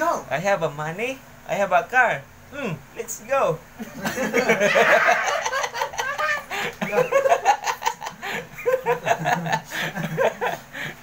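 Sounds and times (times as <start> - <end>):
people laughing heartily: 3.8 - 11.0.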